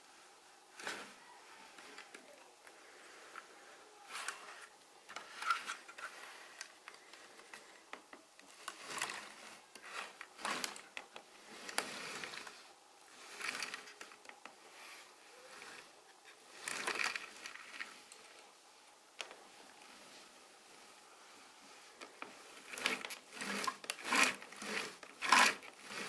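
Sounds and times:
plastic toy rubbing on wooden table: 22.6s - 26.0s.

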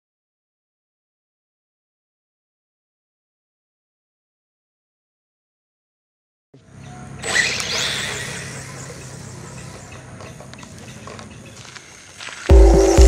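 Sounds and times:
tyre and drivetrain noise: 6.6s - 13.0s
electric motor whining: 7.2s - 9.9s
loud music with heavy beat: 12.5s - 13.0s.

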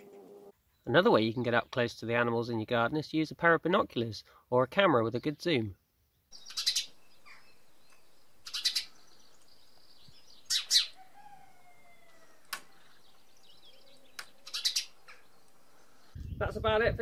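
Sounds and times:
faint birdsong: 0.0s - 2.7s, 4.2s - 16.6s
sparrow chirping: 6.2s - 16.4s.

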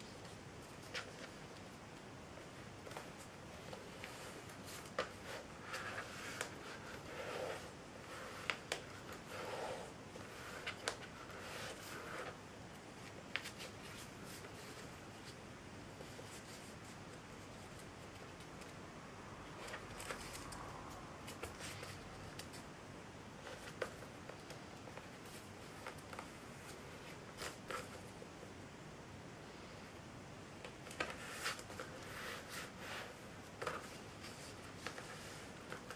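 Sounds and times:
paper rustling: 2.4s - 9.5s, 10.1s - 12.4s.

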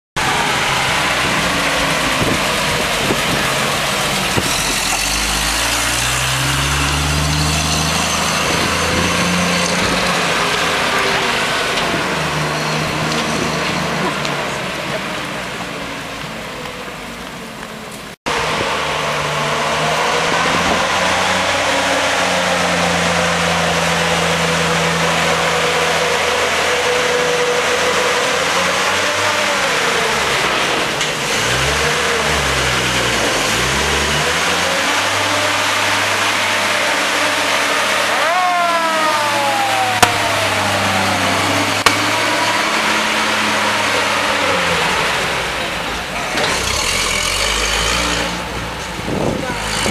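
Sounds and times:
fire engine driving by: 0.2s - 49.9s
rising and falling whine: 38.0s - 45.6s.

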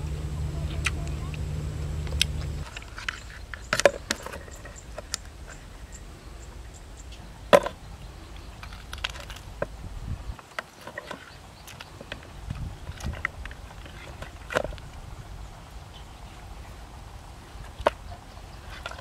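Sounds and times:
low rumble: 0.0s - 2.7s, 7.7s - 10.4s.

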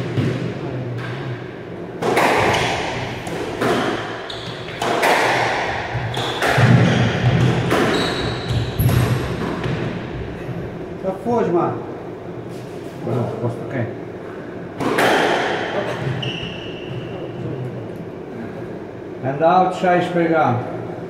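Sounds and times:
squash ball hitting rackets and walls: 0.0s - 10.4s, 14.8s - 17.1s
shoes squeaking on wooden floor: 3.2s - 5.1s, 6.0s - 9.3s, 16.0s - 17.3s.

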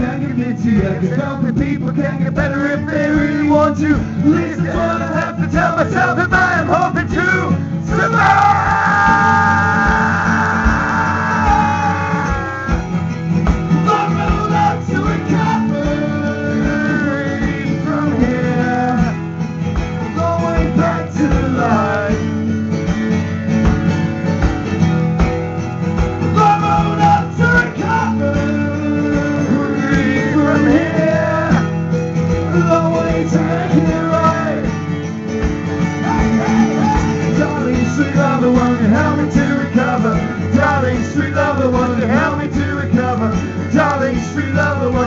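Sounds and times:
person singing: 0.0s - 13.0s, 13.8s - 19.2s, 20.1s - 22.3s, 26.4s - 31.8s, 32.4s - 34.7s
acoustic guitars strumming: 0.0s - 45.0s.

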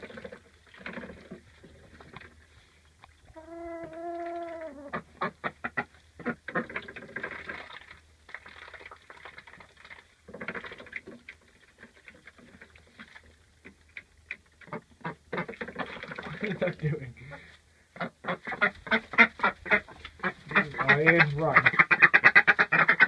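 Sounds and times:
birds pecking in straw: 18.3s - 22.1s.

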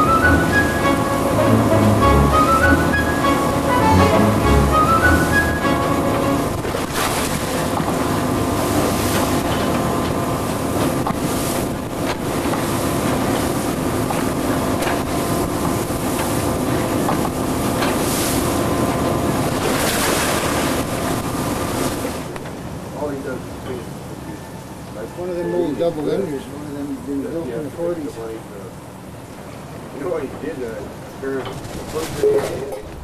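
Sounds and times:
rough sea wash: 0.0s - 24.3s
boat engine drone: 0.0s - 33.0s.

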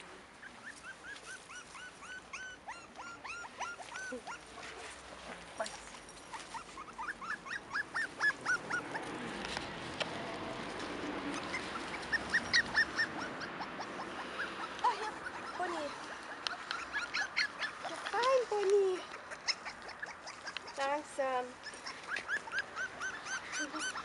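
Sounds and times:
puppies squeaking and whimpering: 0.0s - 4.9s, 5.6s - 9.6s, 10.3s - 24.0s
rustling: 0.0s - 13.1s.

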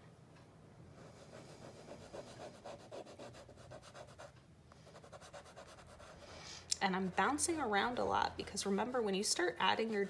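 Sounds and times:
charcoal scratching on paper: 1.2s - 4.3s, 4.9s - 8.0s, 8.6s - 10.0s.

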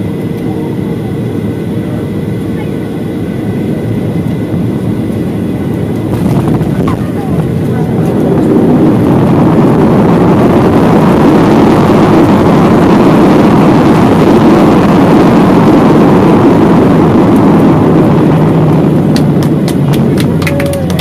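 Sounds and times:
jet engine and airflow roar: 0.0s - 21.0s.

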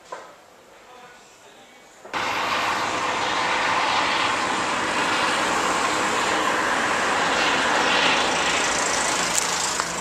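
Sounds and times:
helicopter flying overhead: 2.2s - 10.0s.

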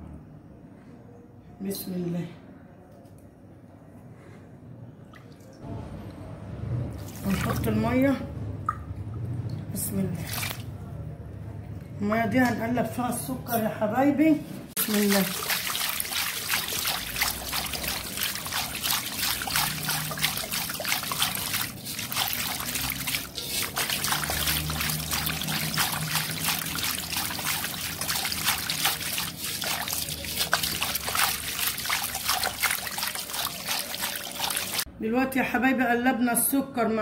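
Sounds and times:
water swishing in a metal bowl: 6.9s - 8.0s, 14.7s - 34.9s.

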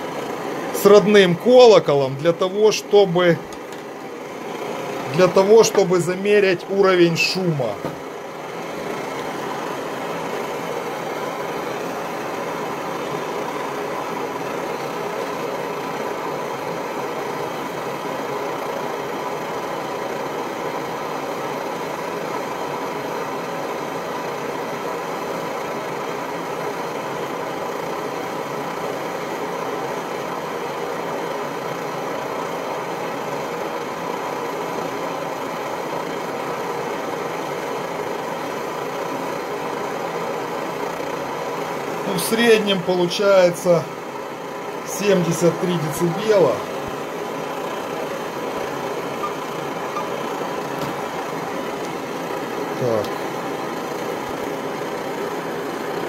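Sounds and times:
pressure stove burning: 0.0s - 56.0s.

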